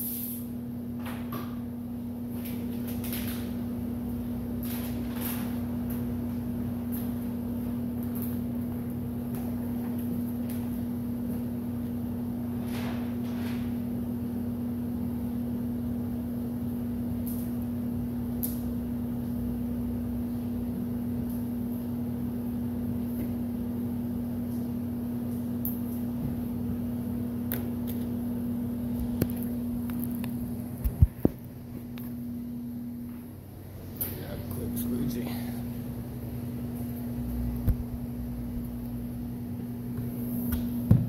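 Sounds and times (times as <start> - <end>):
electric fan motor hum: 0.0 - 41.0.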